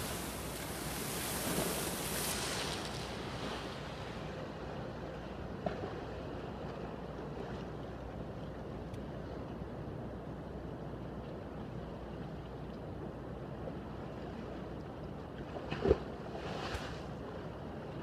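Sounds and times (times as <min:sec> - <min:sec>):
waves splashing against a seawall: 0:00.0 - 0:04.6, 0:15.6 - 0:17.3.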